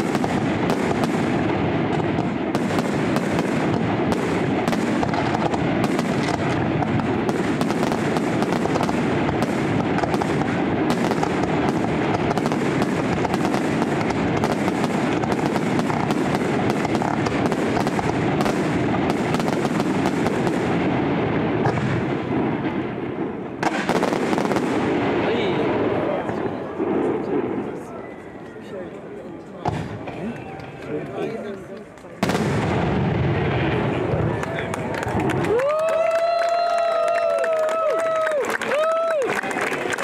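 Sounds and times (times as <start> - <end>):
firework shells bursting: 0.0 - 20.9
firework crackle: 0.0 - 28.7, 29.7 - 40.0.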